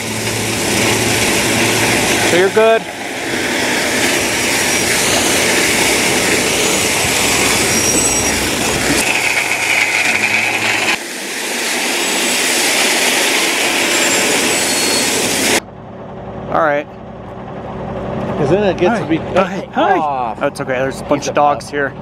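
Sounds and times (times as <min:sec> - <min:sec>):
gravel pouring from truck: 0:00.0 - 0:15.6
truck engine rumble: 0:00.0 - 0:22.0.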